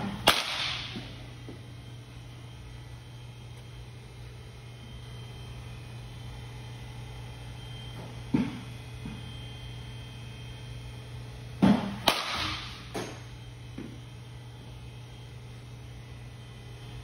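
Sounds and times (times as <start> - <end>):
bat cracking on ball: 0.0 - 1.1, 11.6 - 13.3
steady low hum: 0.0 - 17.0.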